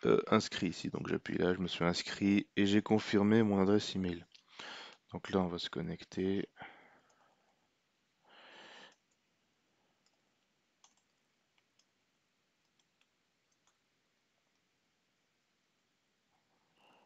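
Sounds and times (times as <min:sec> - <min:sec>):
keyboard typing clicks: 0:10.8 - 0:11.2.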